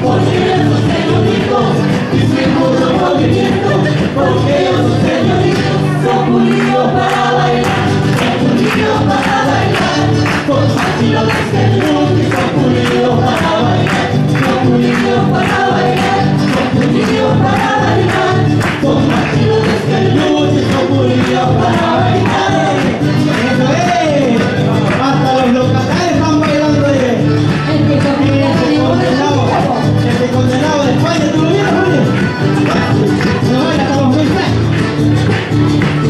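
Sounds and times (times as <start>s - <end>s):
voices singing together: 0.0s - 35.5s.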